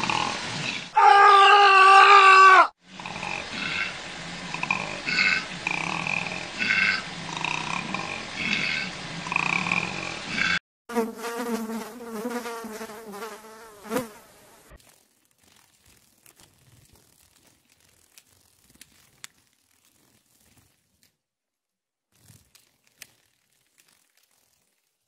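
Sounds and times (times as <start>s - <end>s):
bee buzzing in flight: 10.9s - 14.8s, 15.4s - 20.6s
faint ticks and rustles: 14.8s - 21.2s, 22.2s - 25.0s.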